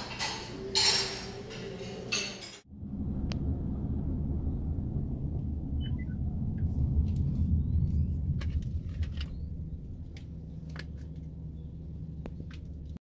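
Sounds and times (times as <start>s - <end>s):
dishes and cutlery clinking: 0.0s - 2.6s
car interior rumble: 2.7s - 13.0s.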